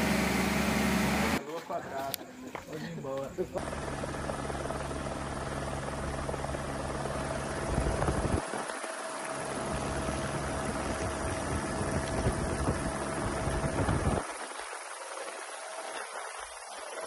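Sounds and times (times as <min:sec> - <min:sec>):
helicopter engine and rotor: 0:03.6 - 0:17.0.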